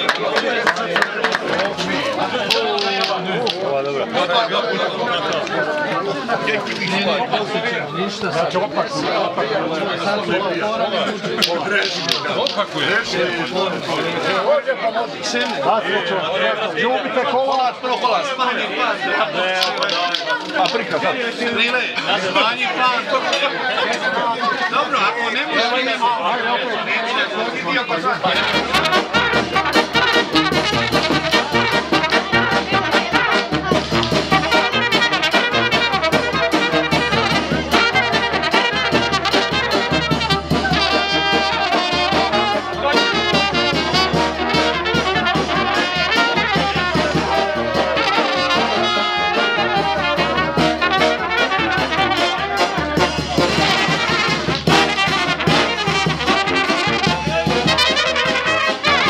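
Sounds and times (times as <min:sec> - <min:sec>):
brass band playing lively tune: 0:00.0 - 0:07.6, 0:09.7 - 0:14.4, 0:19.0 - 0:21.2, 0:28.2 - 0:59.0
steady drum beat: 0:28.4 - 0:59.0.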